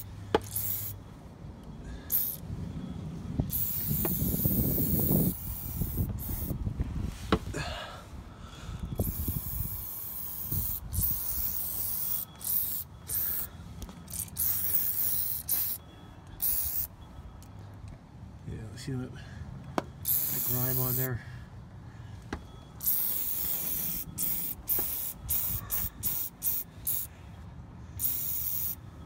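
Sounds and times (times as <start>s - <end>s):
aerosol can spraying: 0.0s - 0.9s, 3.5s - 6.5s, 9.0s - 13.5s, 14.1s - 15.8s, 16.4s - 16.9s, 20.1s - 21.0s, 22.8s - 27.1s, 28.0s - 28.8s.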